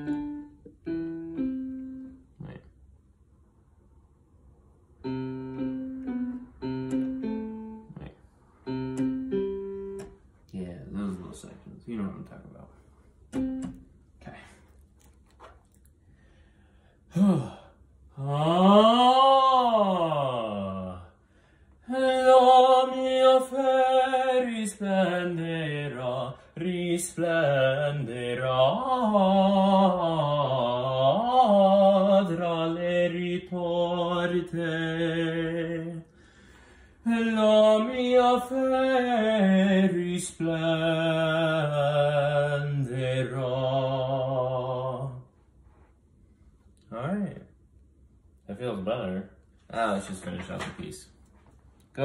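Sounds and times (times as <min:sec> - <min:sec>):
man singing opera with vibrato: 0:17.1 - 0:21.2, 0:21.8 - 0:36.1, 0:37.0 - 0:45.3
singer taking quick breaths: 0:21.2 - 0:21.8, 0:36.1 - 0:37.0.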